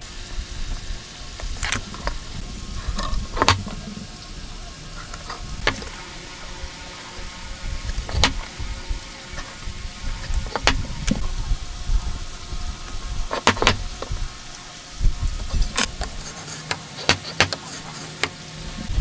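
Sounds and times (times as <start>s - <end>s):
tools tapping on wood: 3.4s - 3.8s, 5.2s - 5.9s, 8.0s - 8.5s, 10.5s - 11.2s, 13.3s - 14.1s, 15.7s - 18.4s.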